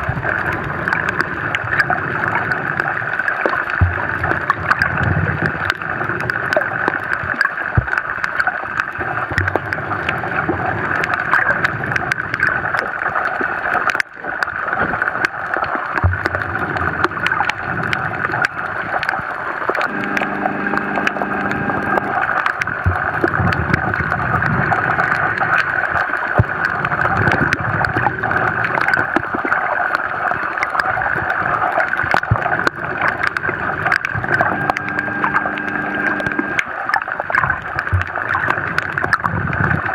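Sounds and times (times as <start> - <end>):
small clicks and crackles: 0.0 - 39.9
underwater rushing water: 0.0 - 39.9
hum of steady tones: 19.8 - 24.8, 32.3 - 36.7.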